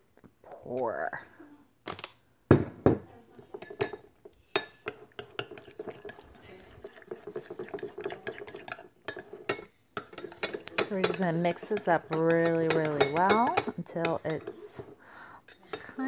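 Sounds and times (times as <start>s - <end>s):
spoon clinking and scraping bowl: 3.4s - 16.0s.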